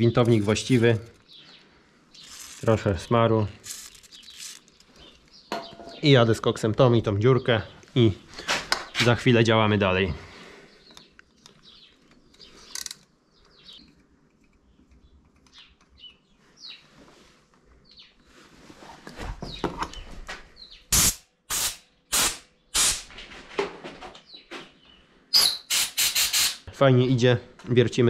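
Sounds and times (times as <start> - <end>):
birds chirping: 0.0 - 18.4, 19.4 - 21.0, 24.0 - 28.0
short rushing bursts of noise: 25.4 - 26.6.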